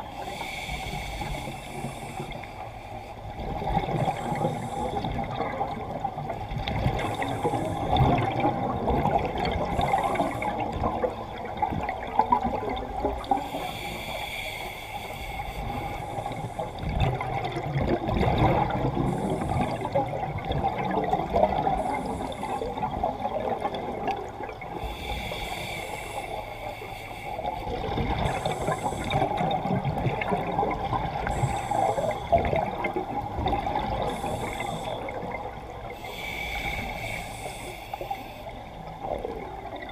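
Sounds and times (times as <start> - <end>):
regulator inhale hiss: 0.0 - 5.4, 6.9 - 8.2, 9.5 - 11.1, 13.2 - 17.0, 18.9 - 20.2, 21.6 - 23.1, 24.7 - 29.7, 31.1 - 32.9, 33.8 - 39.7
exhaled bubbles gurgling underwater: 0.0 - 39.9.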